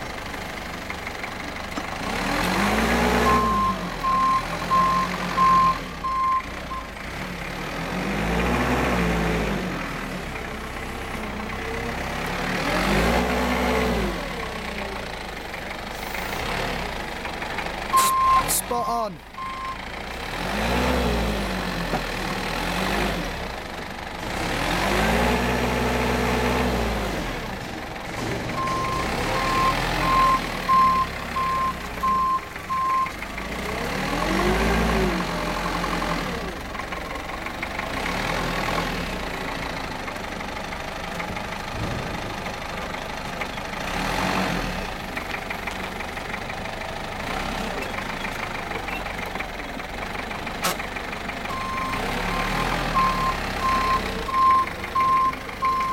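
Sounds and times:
forklift engine revving: 0:00.0 - 0:55.9
reversing beeper beeps: 0:18.0 - 0:18.5, 0:28.6 - 0:33.1, 0:51.5 - 0:55.9.

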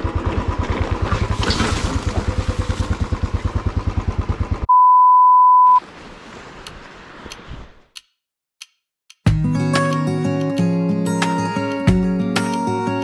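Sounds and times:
motorcycle engine running: 0:00.0 - 0:04.7
electronic beep: 0:04.7 - 0:05.8.

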